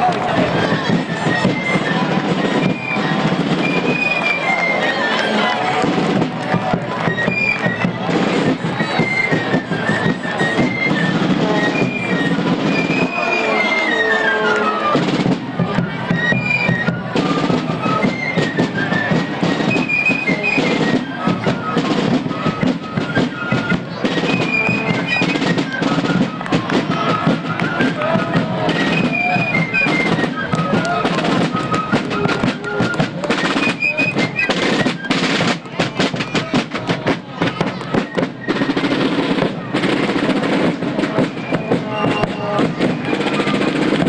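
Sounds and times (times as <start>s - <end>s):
rapid snare drumming: 0.0s - 44.0s
bass drum beats: 5.7s - 7.2s.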